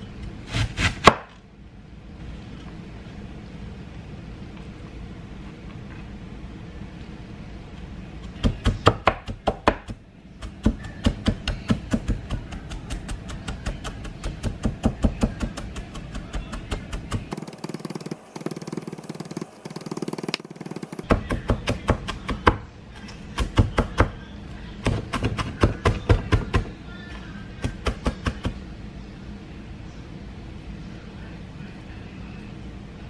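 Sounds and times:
knife chopping on wooden board: 0.5s - 1.3s, 8.3s - 22.6s.

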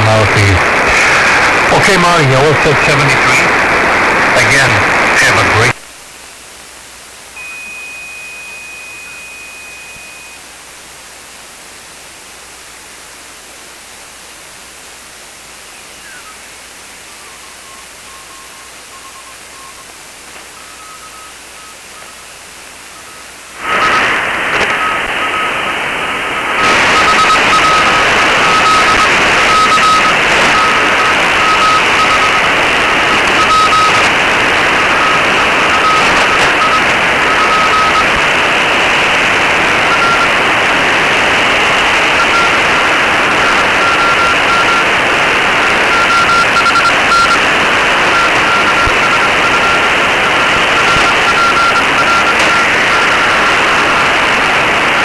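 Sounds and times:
radio noise hiss: 0.0s - 55.0s
steady radio whistle: 0.1s - 3.6s, 4.4s - 5.7s, 7.4s - 10.6s, 15.4s - 55.0s
morse code beeping tone: 7.4s - 10.5s, 17.0s - 24.1s, 26.4s - 38.1s, 39.9s - 40.4s, 42.1s - 44.9s, 45.6s - 54.1s.

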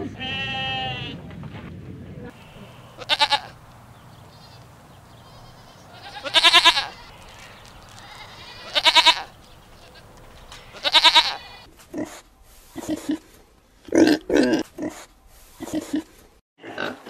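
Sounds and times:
goats bleating: 0.0s - 1.2s, 2.3s - 11.7s.

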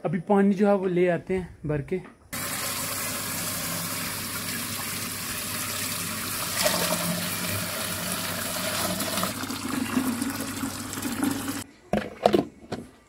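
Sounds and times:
water from hose splashing into container: 2.4s - 11.6s.

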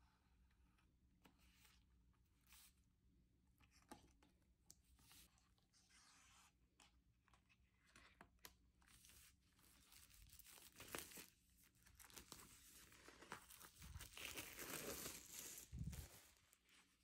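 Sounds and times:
plastic wrap crinkling and tearing: 9.0s - 16.6s.

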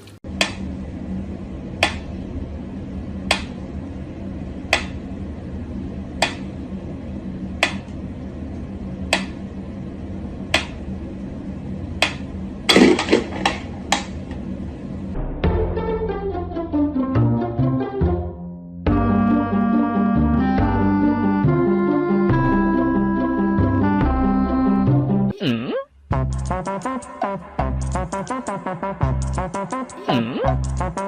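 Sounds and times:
knocks and clatter: 12.7s - 14.1s.

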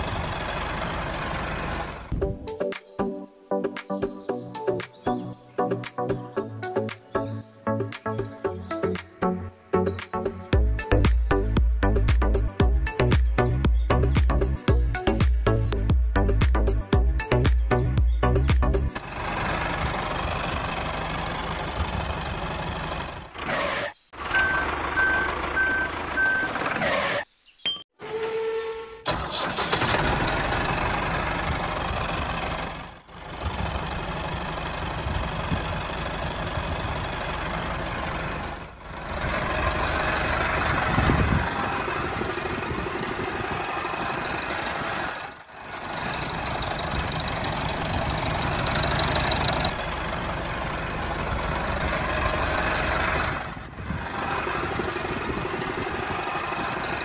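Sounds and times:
tractor engine running: 0.0s - 2.6s, 10.6s - 26.8s, 29.1s - 57.0s.

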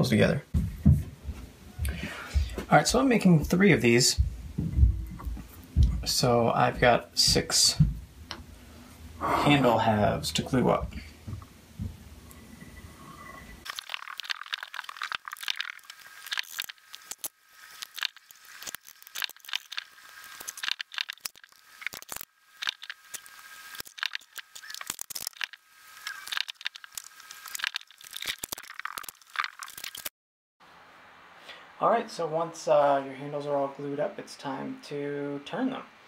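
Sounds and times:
thin high-pitched crackling and clicking: 13.6s - 30.1s.

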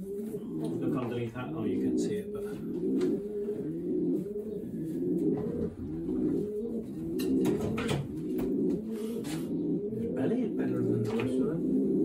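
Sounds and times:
pigeons cooing: 0.0s - 12.0s.

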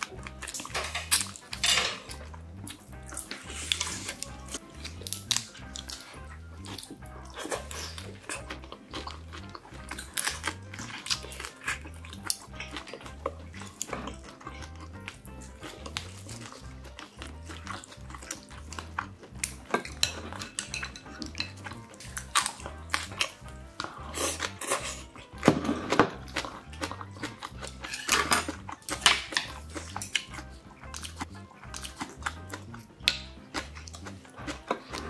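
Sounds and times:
chewing: 0.0s - 35.0s
soft background music: 0.0s - 35.0s
chopsticks tapping ceramic bowls: 0.5s - 2.3s, 18.8s - 23.4s, 27.8s - 33.8s.

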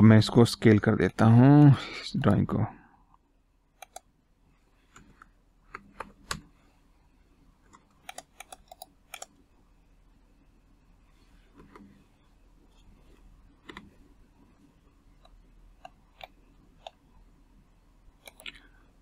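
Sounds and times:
keyboard and mouse clicks: 3.8s - 4.1s, 7.7s - 9.3s, 13.6s - 14.0s, 18.2s - 18.6s.

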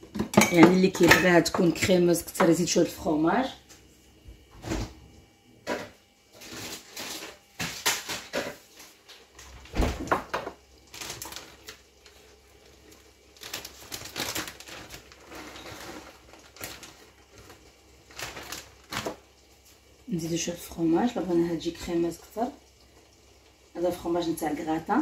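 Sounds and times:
plastic bag crinkling: 10.8s - 19.6s.

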